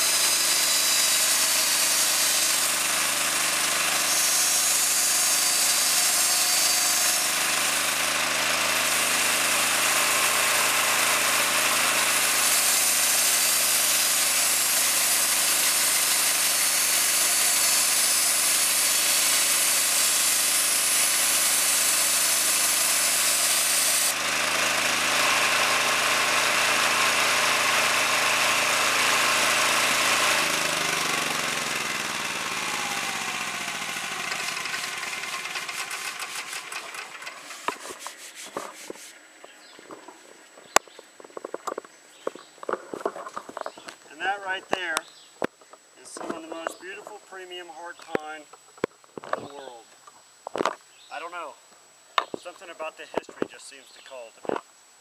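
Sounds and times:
bandsaw blade cutting hiss: 0.0 - 39.2
gasoline engine running: 6.9 - 37.8.

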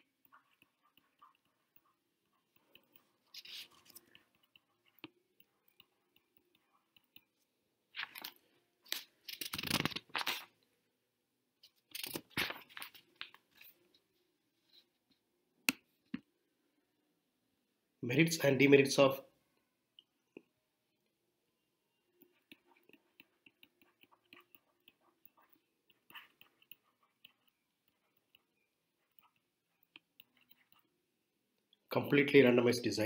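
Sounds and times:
stylus scratching on tablet screen: 0.0 - 10.5, 21.9 - 31.1.

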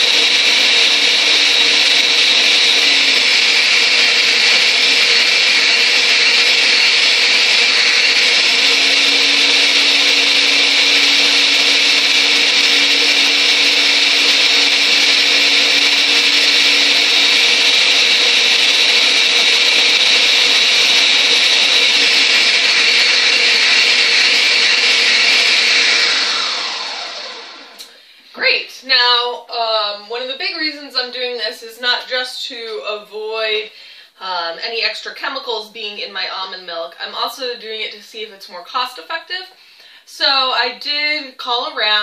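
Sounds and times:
blender motor winding down: 0.0 - 28.0
blender running: 0.0 - 28.0.

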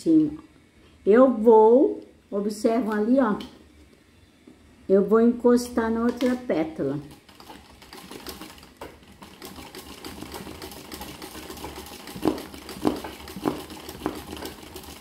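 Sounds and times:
sewing machine stitching: 7.0 - 15.0.

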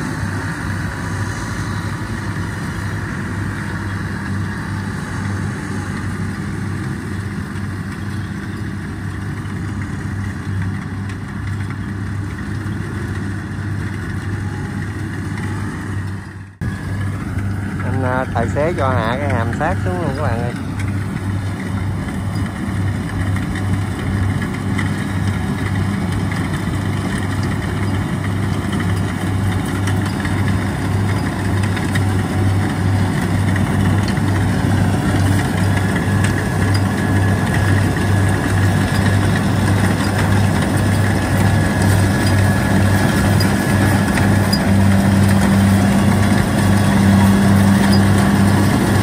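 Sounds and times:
combine harvester engine running: 0.0 - 49.0
thin steady whine: 13.1 - 49.0.

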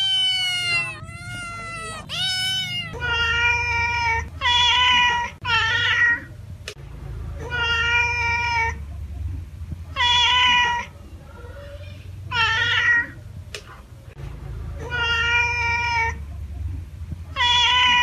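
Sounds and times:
cat meowing: 0.0 - 6.3, 7.4 - 8.8, 9.9 - 13.2, 14.8 - 16.2, 17.3 - 18.0.

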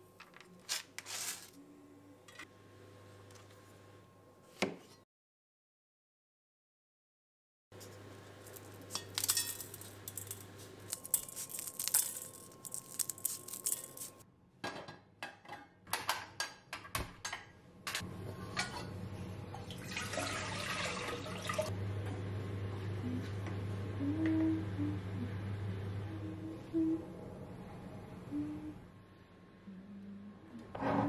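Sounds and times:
water pouring into pot: 19.6 - 21.7.

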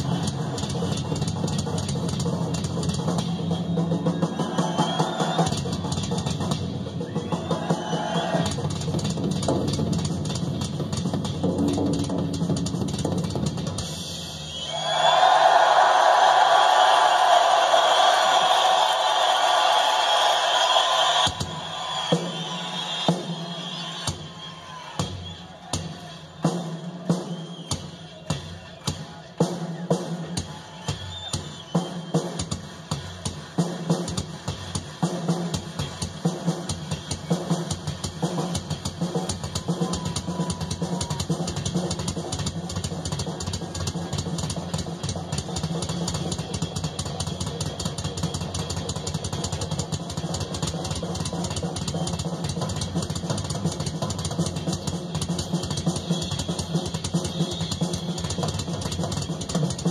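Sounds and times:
rock drum solo: 0.0 - 59.9.

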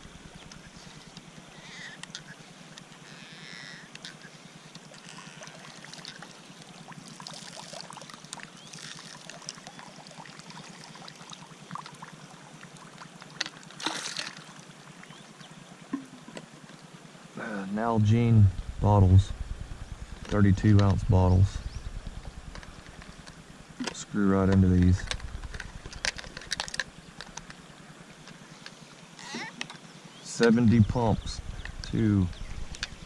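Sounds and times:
bird calls: 0.0 - 5.5, 20.9 - 23.3, 28.3 - 33.0.

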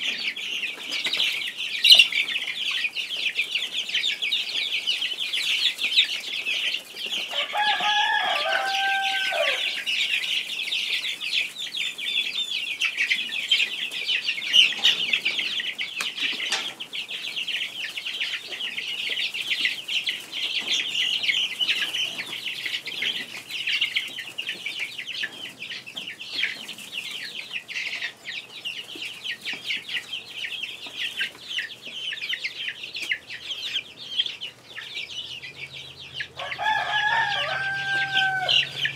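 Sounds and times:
chicks peeping: 0.0 - 38.9
lower chicken call: 7.3 - 9.9, 36.3 - 38.9.

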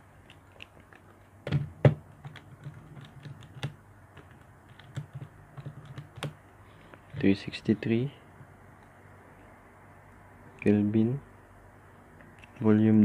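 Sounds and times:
calculator knocking on paper: 1.4 - 6.4
calculator buttons clicking: 2.2 - 6.4.

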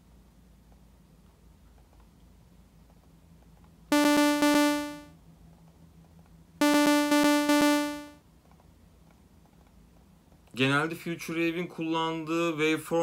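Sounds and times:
buzzy synthesizer repeated notes: 3.9 - 5.1, 6.6 - 8.2.

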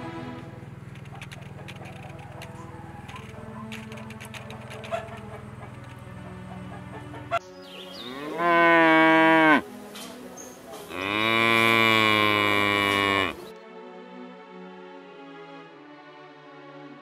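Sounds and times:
cow mooing: 8.0 - 9.6, 10.9 - 13.5.

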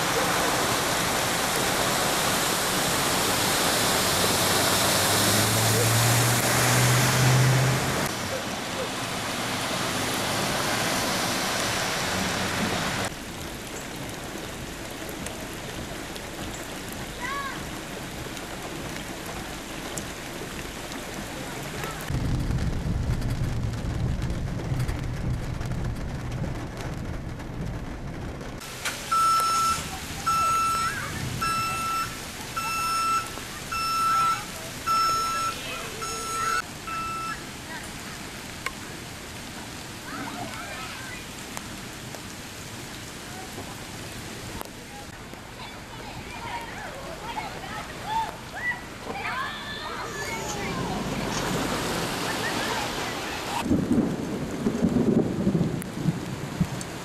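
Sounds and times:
rain falling on flooded street: 0.0 - 57.0
truck wheels spraying floodwater: 0.0 - 57.0
high-pitched electronic beeps: 29.1 - 37.4.

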